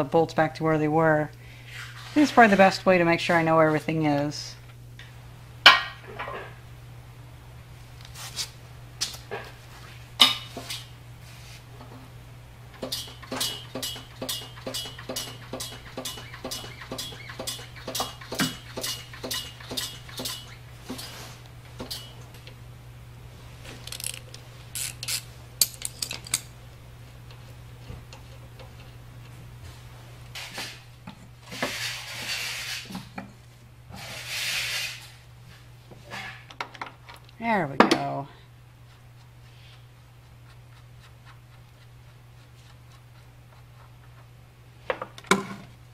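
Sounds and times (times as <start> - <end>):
metal tools clinking on iron: 12.8 - 21.1, 24.8 - 26.5
rasping metal scrapes: 31.5 - 33.0.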